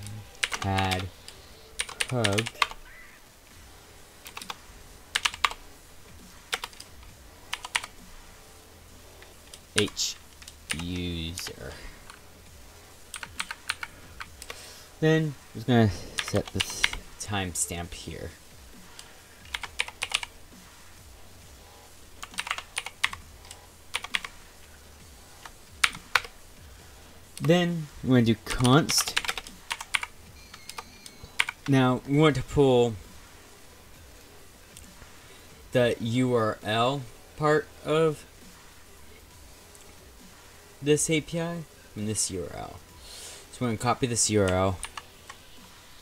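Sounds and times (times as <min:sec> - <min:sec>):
computer keyboard typing: 0:00.0 - 0:01.1, 0:01.8 - 0:02.8, 0:04.2 - 0:05.6, 0:06.5 - 0:06.9, 0:07.5 - 0:07.9, 0:09.8 - 0:11.1, 0:13.1 - 0:14.6, 0:16.2 - 0:17.0, 0:19.5 - 0:20.3, 0:22.2 - 0:24.4, 0:25.8 - 0:26.3, 0:28.6 - 0:31.7, 0:44.4 - 0:45.4.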